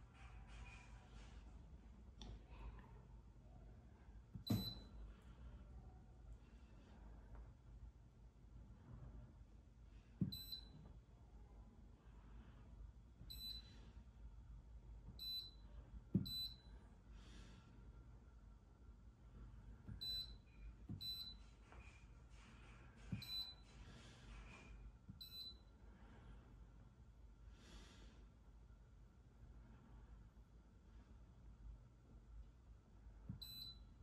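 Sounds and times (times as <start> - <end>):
touchscreen key-press beeps: 4.5 - 4.9, 10.2 - 10.8, 13.3 - 13.7, 15.2 - 15.6, 16.2 - 16.6, 19.9 - 21.4, 23.2 - 23.6, 25.2 - 25.6, 33.3 - 33.8.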